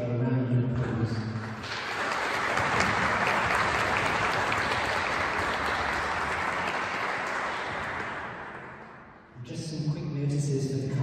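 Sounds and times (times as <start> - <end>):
crowd applauding: 1.4 - 9.2.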